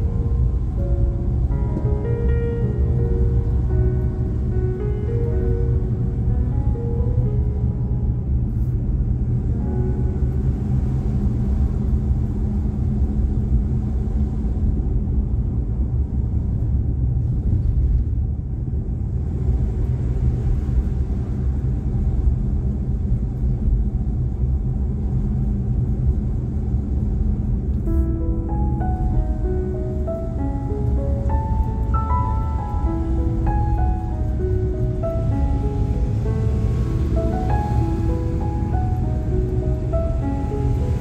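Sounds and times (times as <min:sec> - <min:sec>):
background music: 0:00.0 - 0:11.8, 0:27.7 - 0:41.0
car engine and tyre noise: 0:00.0 - 0:41.0.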